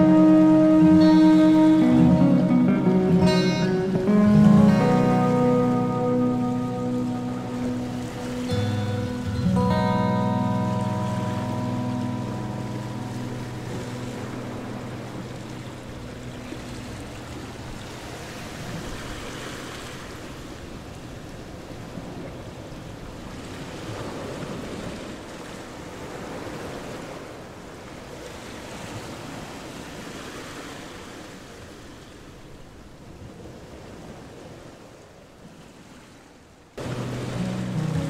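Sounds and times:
held musical tones: 0.0 - 18.1, 36.8 - 38.0
small waves lapping against riverbank: 0.0 - 38.0.

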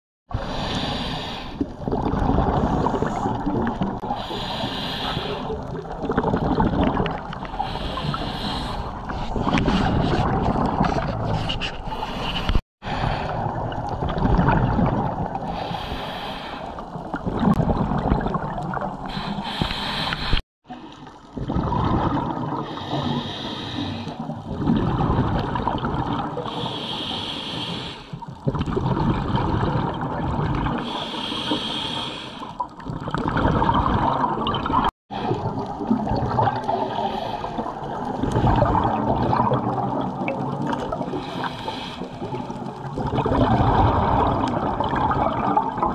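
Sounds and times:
scuba regulator hissing inhale: 0.4 - 1.6, 4.1 - 5.6, 7.5 - 9.0, 15.5 - 16.9, 19.0 - 20.4, 22.6 - 24.2, 26.5 - 28.2, 30.8 - 32.6, 36.8 - 37.6, 41.2 - 42.4.

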